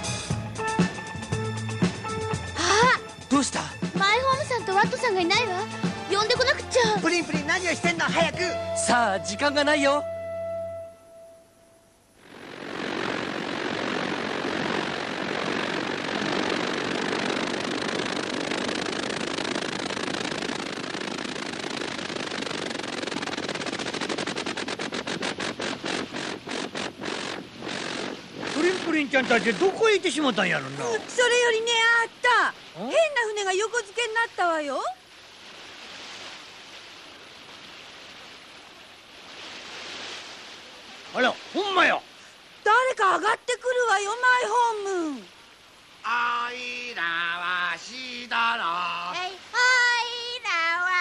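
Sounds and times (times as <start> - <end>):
surf washing: 1.8 - 11.4, 12.0 - 51.0
hovercraft engine and fans rushing: 12.2 - 32.2.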